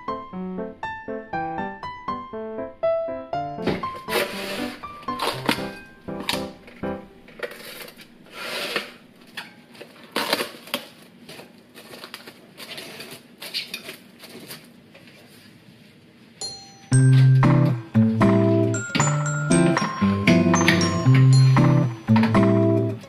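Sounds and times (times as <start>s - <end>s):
cling film crinkling: 4.0s - 15.5s
loud background music: 17.3s - 23.0s.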